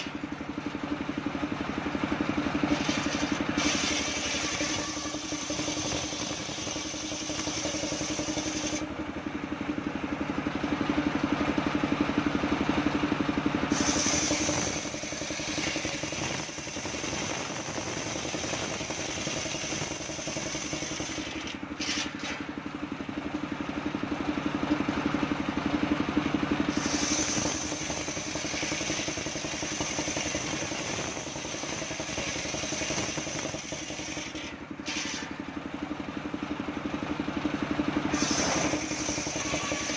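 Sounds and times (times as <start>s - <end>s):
engine running: 0.0s - 39.9s
circular saw ripping a log: 2.6s - 8.9s, 13.7s - 22.5s, 26.7s - 35.4s, 38.1s - 39.9s.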